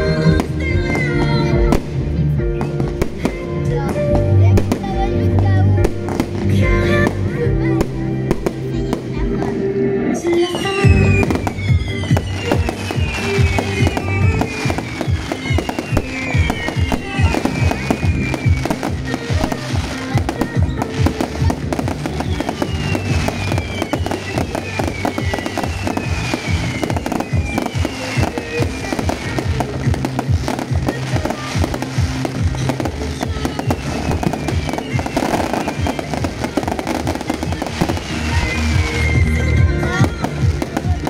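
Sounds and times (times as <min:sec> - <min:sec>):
music with low chords: 0:00.0 - 0:10.3, 0:10.9 - 0:41.0
fireworks crackling and popping: 0:00.0 - 0:41.0
fireworks whistles: 0:08.3 - 0:41.0.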